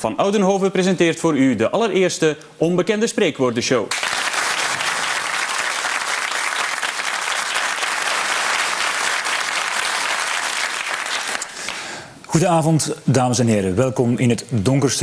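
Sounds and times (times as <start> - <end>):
studio audience applauding: 3.9 - 11.9.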